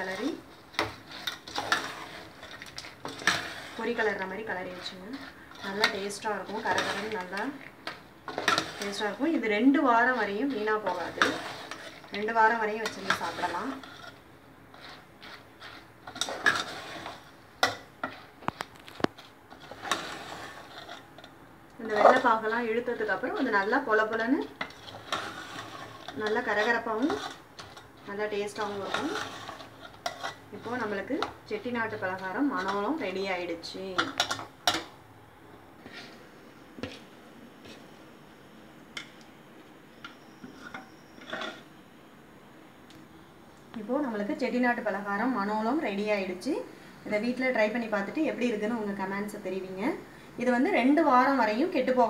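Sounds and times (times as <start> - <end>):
spoon scraping and knocking pot: 0.0 - 9.2, 10.1 - 33.2, 33.9 - 34.9, 40.0 - 41.7.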